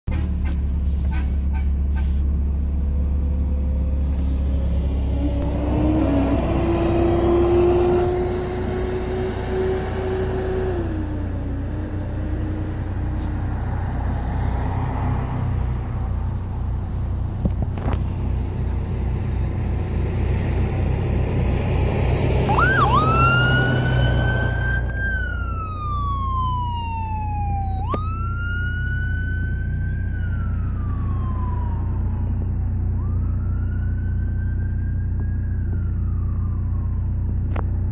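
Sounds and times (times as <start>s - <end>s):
engine and road rumble: 0.0s - 37.9s
emergency vehicle sirens: 0.1s - 37.9s
electronic wail siren: 4.6s - 13.5s, 22.4s - 37.6s.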